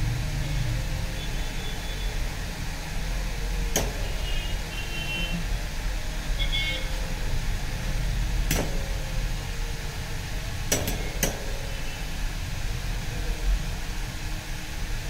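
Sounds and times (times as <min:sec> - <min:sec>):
steady low hum: 0:00.0 - 0:15.0
sharp metallic clicks: 0:03.7 - 0:04.3, 0:08.4 - 0:09.0, 0:10.6 - 0:11.6.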